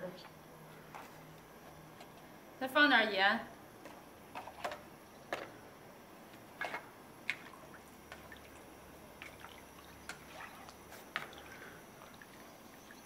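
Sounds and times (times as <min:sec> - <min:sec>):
liquid sloshing: 0:06.6 - 0:13.0.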